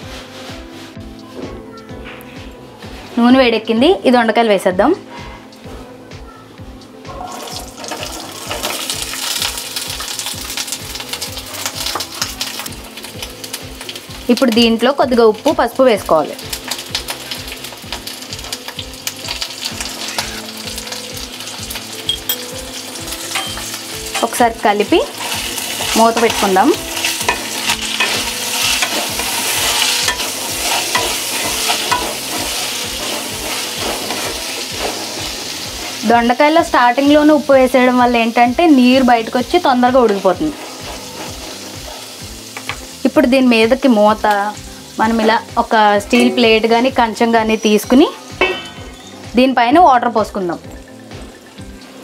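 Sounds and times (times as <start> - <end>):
vegetables sizzling in hot oil: 6.7 - 52.0
spatula scraping and knocking pan: 25.0 - 36.0, 39.9 - 42.9.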